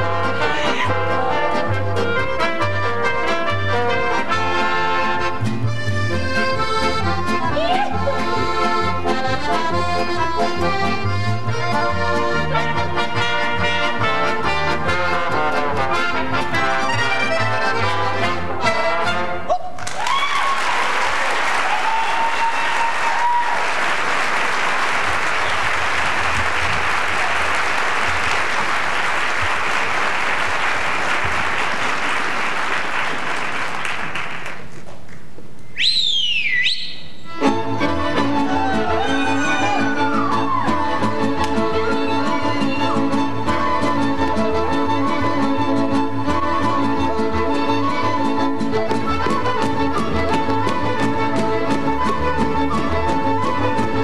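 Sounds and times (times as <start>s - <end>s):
folk band playing lively tune: 0.0s - 19.5s, 37.3s - 54.0s
audience applause: 19.8s - 34.8s
person whistling: 35.8s - 37.2s.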